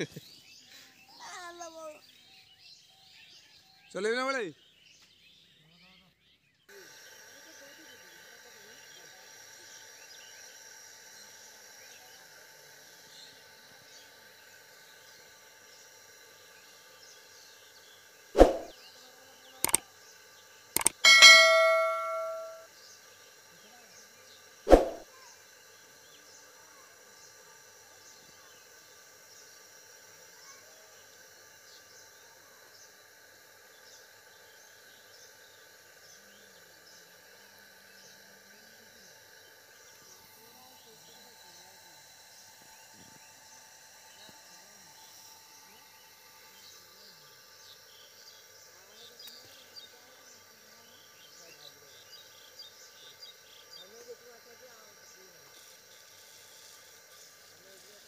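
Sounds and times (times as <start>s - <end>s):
sharp click: 18.4s - 18.7s, 20.8s - 22.6s, 24.7s - 25.0s
sharp thump: 18.4s - 18.7s, 24.7s - 25.0s
bell chime: 20.8s - 22.6s
faint bird chirps: 20.8s - 22.6s.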